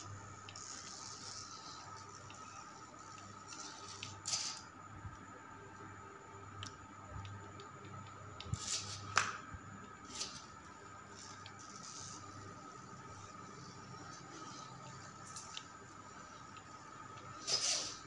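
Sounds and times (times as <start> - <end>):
small electric motor whining: 0.0 - 4.7, 17.4 - 18.0.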